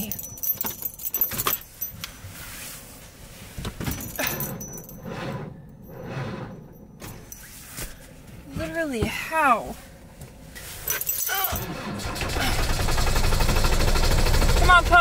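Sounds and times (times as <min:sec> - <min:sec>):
keys jangling: 0:00.0 - 0:02.1, 0:03.8 - 0:05.0, 0:10.8 - 0:11.7.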